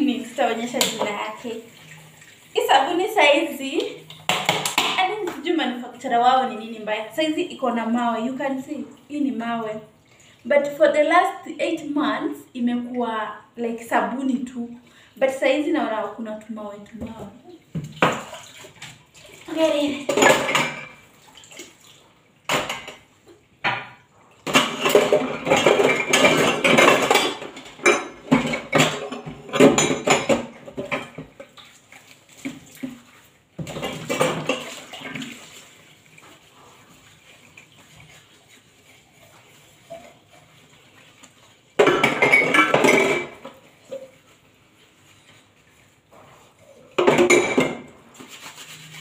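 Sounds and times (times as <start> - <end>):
running tap water: 0.0 - 49.0
dishes clattering in a sink: 0.4 - 2.3, 3.9 - 5.5, 16.9 - 44.4, 46.1 - 49.0.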